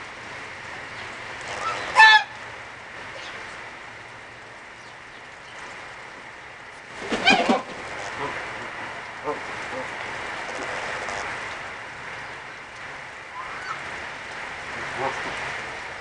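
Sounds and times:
geese honking: 0:01.6 - 0:02.4.

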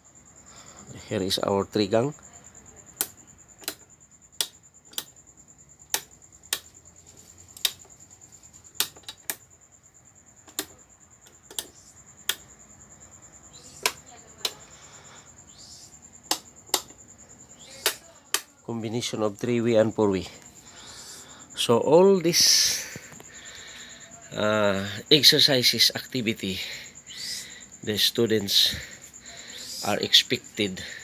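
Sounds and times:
light switch clicks: 0:03.0 - 0:03.8, 0:04.4 - 0:05.2, 0:11.5 - 0:12.5.

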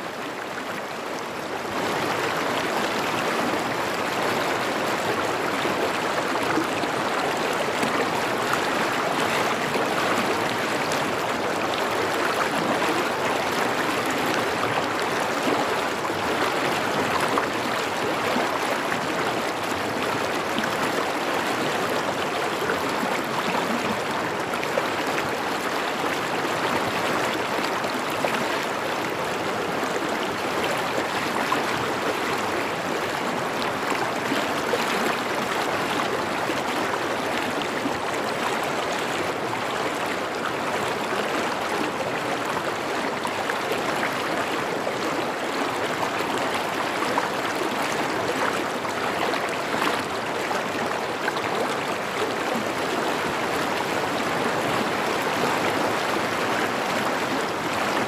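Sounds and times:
stream rushing over rocks: 0:00.0 - 0:58.0.

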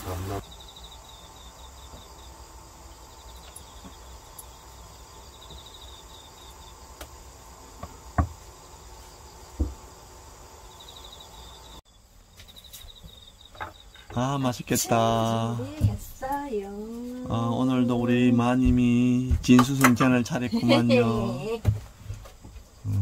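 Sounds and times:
crickets chirping: 0:00.0 - 0:23.0
knocks on wooden cutting board: 0:07.8 - 0:08.4, 0:09.6 - 0:09.8.

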